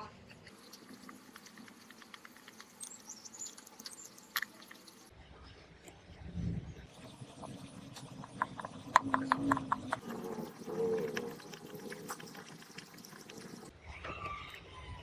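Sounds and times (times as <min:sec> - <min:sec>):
screwdriver ticking and scraping: 0:00.3 - 0:05.1.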